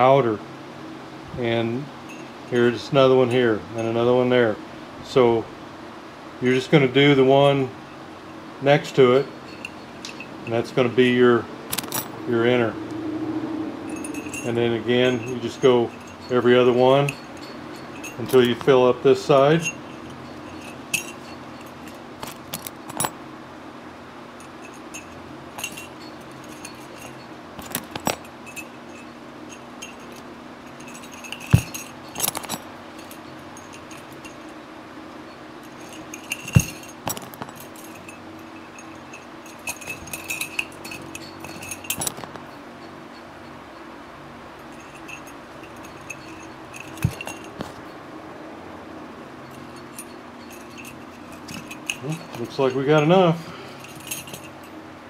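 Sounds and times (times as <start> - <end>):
wheel spokes jingling: 2.0 - 4.4, 6.4 - 12.7, 13.8 - 23.2, 24.3 - 48.0, 49.3 - 54.9
sharp metallic knocks: 24.4 - 34.5.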